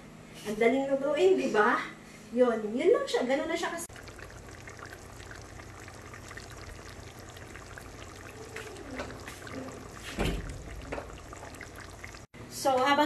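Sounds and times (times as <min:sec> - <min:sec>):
coconut milk bubbling in a wok: 0:03.8 - 0:12.3.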